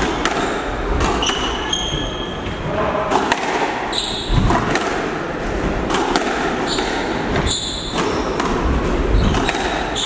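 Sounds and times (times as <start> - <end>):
shoes squeaking on wooden floor: 1.2 - 2.6, 3.9 - 4.5, 6.6 - 8.5
squash ball knocks: 3.1 - 5.2, 5.8 - 10.0.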